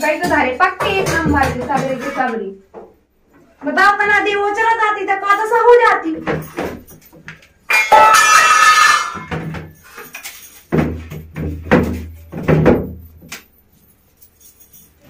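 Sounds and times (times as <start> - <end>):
metal utensils clattering: 7.7 - 10.7.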